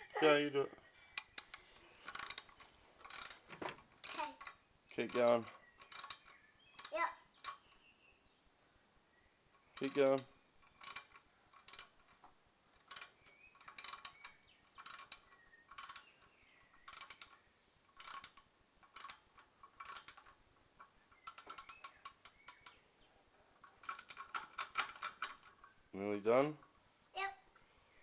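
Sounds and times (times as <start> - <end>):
socket ratchet clicking: 1.2 - 3.4, 4.0 - 7.8, 9.7 - 12.2, 12.8 - 22.8.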